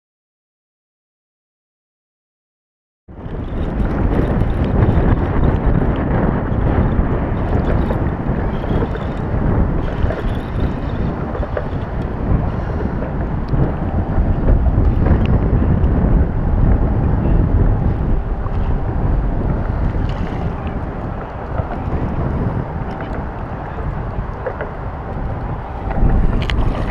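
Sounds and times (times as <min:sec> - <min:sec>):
wind buffeting microphone: 0:03.1 - 0:26.9.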